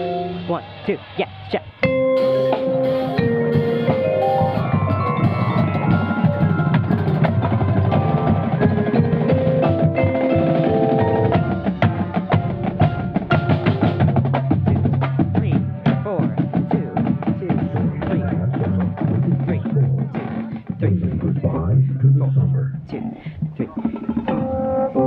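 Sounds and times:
vibraphone notes ringing: 1.8 - 11.6
steady low layer: 3.3 - 24.6.

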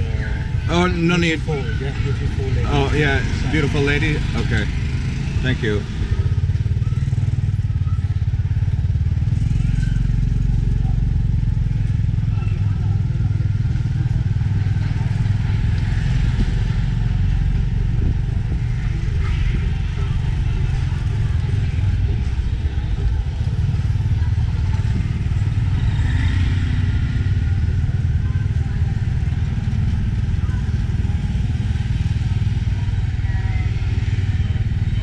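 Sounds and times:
motorcycle engine rumbling: 0.0 - 35.0.

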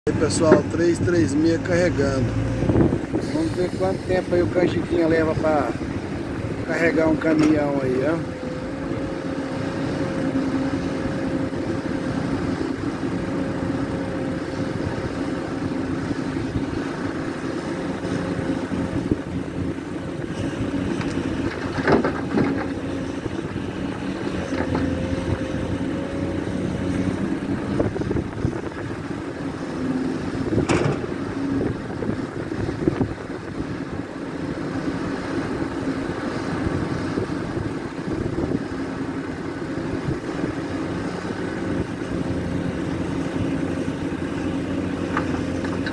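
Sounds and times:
excavator diesel engine running: 0.1 - 36.0, 40.7 - 45.9
sharp knocks: 30.6 - 31.2.

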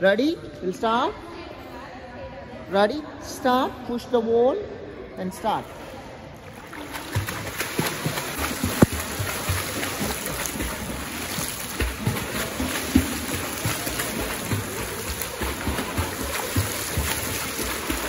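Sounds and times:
swimmer splashing: 5.6 - 18.0
hands and feet slapping water: 5.7 - 18.0.

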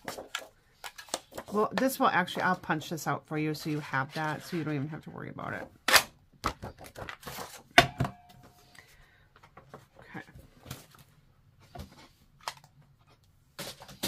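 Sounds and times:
paper and tools handled: 0.0 - 2.0, 6.7 - 7.7.

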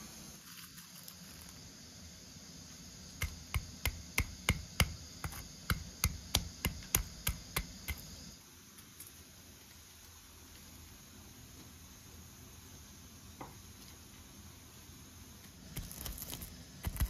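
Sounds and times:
pestle pounding in stone mortar: 3.2 - 8.1.

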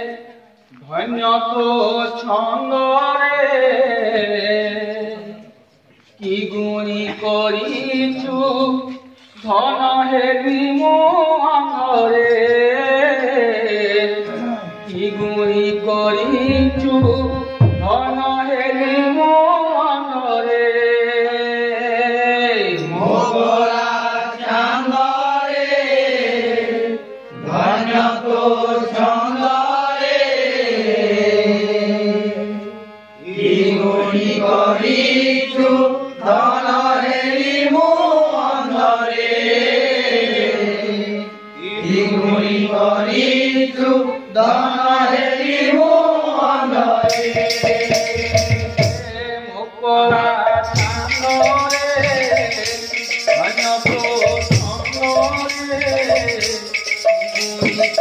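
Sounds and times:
chanted singing melody: 0.0 - 58.0
steady drone: 50.6 - 58.0.

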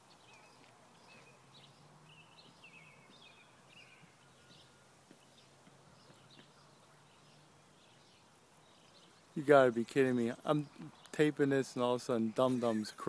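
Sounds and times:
faint bird chirps: 0.0 - 9.4.

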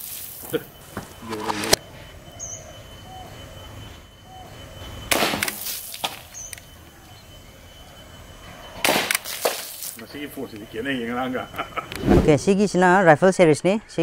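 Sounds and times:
airsoft pistol shot: 5.1 - 6.2, 8.8 - 9.6.

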